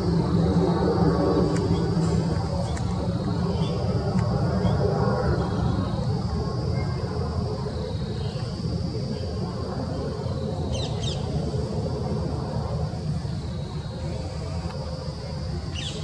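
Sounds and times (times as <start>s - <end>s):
high-pitched hum: 0.0s - 16.0s
jet engines rumbling overhead: 0.0s - 16.0s.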